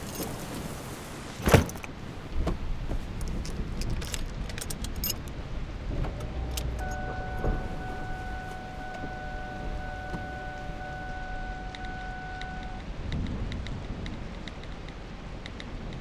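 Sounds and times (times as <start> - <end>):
rain hissing: 0.0 - 16.0
car door slamming: 1.4 - 1.8, 5.9 - 12.8
keys jangling: 3.2 - 5.3
steady high tone: 6.7 - 12.8.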